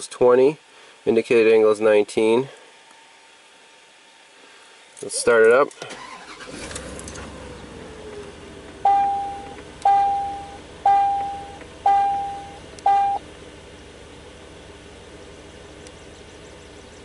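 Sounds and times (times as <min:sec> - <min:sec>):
truck engine starting and idling: 0:05.8 - 0:17.0
vehicle warning chime: 0:08.8 - 0:13.2.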